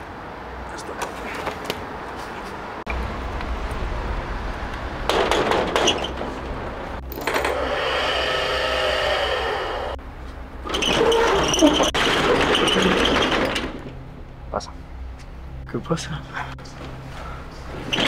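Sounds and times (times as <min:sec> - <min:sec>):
metal roller shutter rattling: 0:05.1 - 0:07.7, 0:10.7 - 0:14.0.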